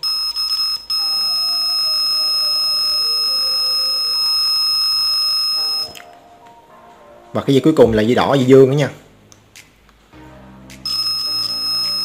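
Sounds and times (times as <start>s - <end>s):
multimeter continuity beep: 0.0s - 6.0s, 10.8s - 12.0s.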